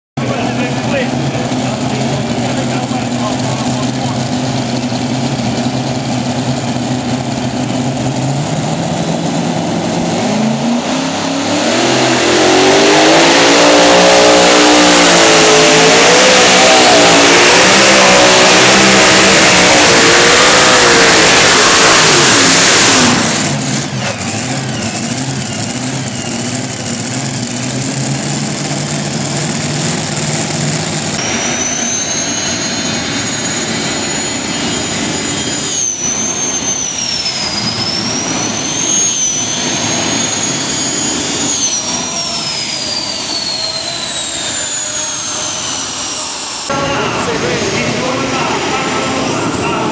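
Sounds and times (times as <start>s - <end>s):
tractor engines revving: 0.2s - 49.9s
high steady whine: 30.0s - 49.9s.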